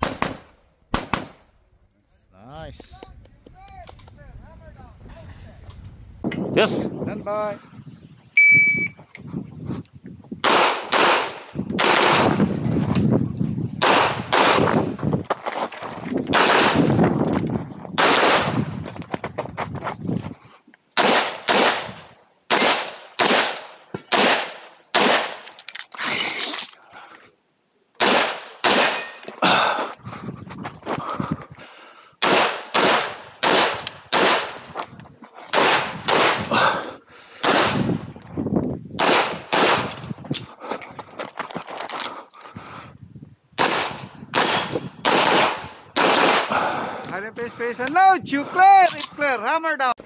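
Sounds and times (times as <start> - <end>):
pistol shots with echo: 10.4 - 12.5, 13.8 - 14.8, 16.3 - 16.9, 18.0 - 18.6, 21.0 - 25.4, 28.0 - 29.2, 32.2 - 34.6, 35.5 - 36.5, 37.4 - 37.9, 39.0 - 39.9, 43.6 - 46.6
running footsteps on gravel: 14.7 - 16.3, 18.6 - 20.6, 29.9 - 31.7, 40.1 - 42.7.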